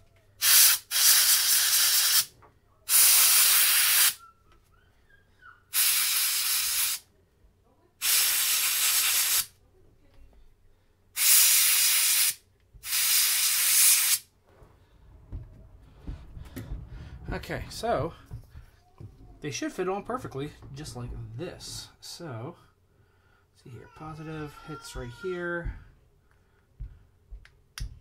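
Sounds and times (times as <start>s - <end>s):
compressed air duster hissing: 0.4s - 2.3s, 2.9s - 4.2s, 5.7s - 7.0s, 8.0s - 9.5s, 11.2s - 14.3s.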